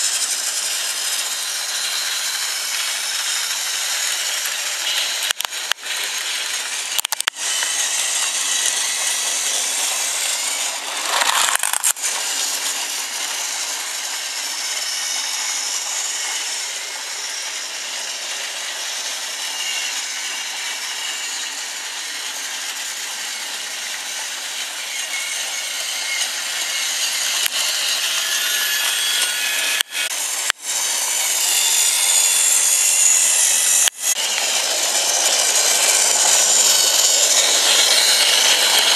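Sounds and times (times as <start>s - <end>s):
toy train motor whirring: 0.0s - 38.9s.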